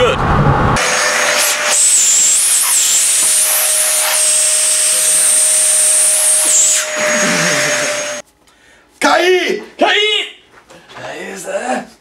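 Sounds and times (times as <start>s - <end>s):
steady whine: 0.0s - 8.2s
electric air device rushing hiss: 0.8s - 8.2s.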